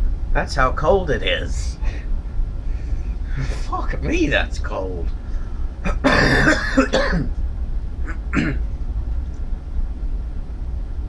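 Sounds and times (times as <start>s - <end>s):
man coughing: 5.8s - 7.3s, 8.1s - 8.6s.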